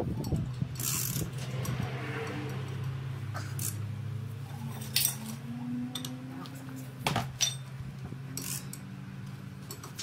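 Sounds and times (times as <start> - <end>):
metal tools clinking: 0.2 - 1.8, 4.6 - 6.2, 7.2 - 8.9.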